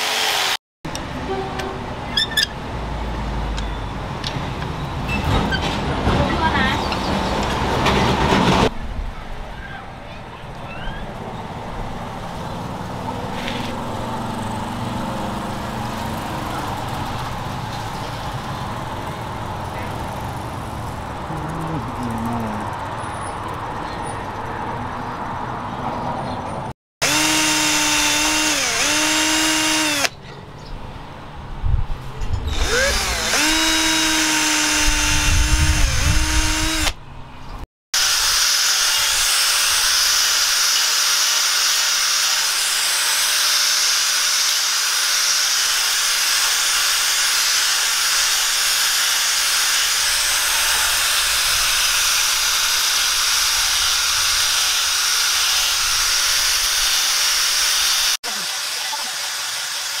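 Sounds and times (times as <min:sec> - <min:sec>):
cordless drill boring through steel: 0:00.0 - 0:00.6, 0:27.0 - 0:30.2, 0:32.5 - 0:37.0, 0:38.0 - 1:00.0
angle grinder sanding wood: 0:27.0 - 0:30.1, 0:32.5 - 0:37.0, 0:38.0 - 1:00.0.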